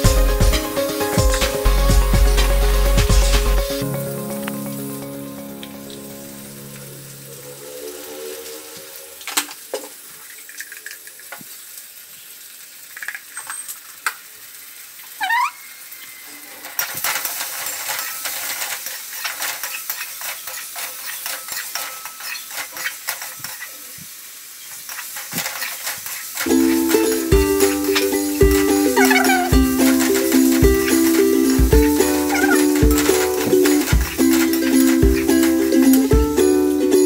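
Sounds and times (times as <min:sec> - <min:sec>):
oil sizzling: 0:00.0 - 0:37.0
spatula scraping and knocking pan: 0:17.0 - 0:23.8, 0:24.8 - 0:36.1.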